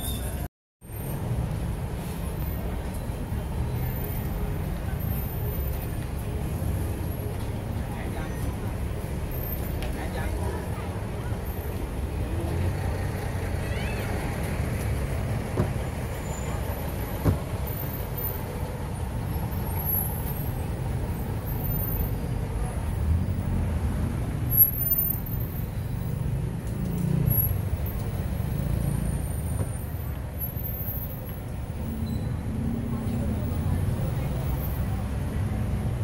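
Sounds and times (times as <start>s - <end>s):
passing traffic rumble: 0.0s - 36.0s
people's voices: 2.0s - 18.2s, 31.0s - 36.0s.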